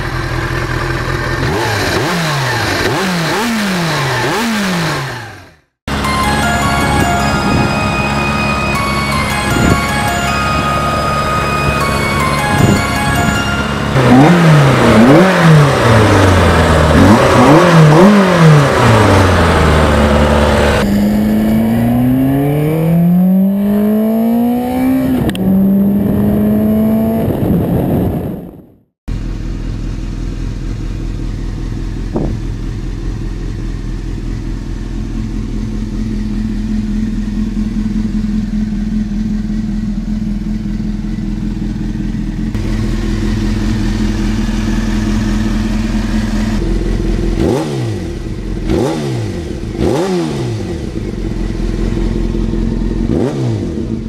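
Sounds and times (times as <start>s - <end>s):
motorcycle engine idling at low revs: 0.0s - 5.6s, 29.1s - 54.0s
motorcycle engine accelerating hard: 0.0s - 54.0s.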